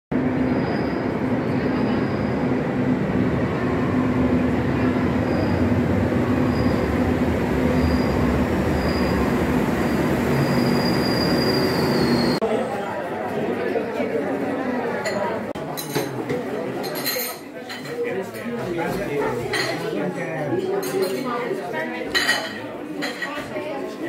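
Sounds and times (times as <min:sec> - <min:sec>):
train wheels rumbling: 0:00.3 - 0:12.4
high wheel squeals: 0:05.0 - 0:12.4.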